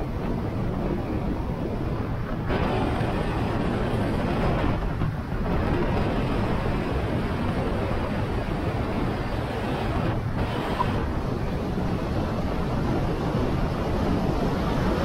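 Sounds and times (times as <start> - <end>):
road noise: 0.0 - 15.0
wind rushing over microphone: 0.0 - 15.0.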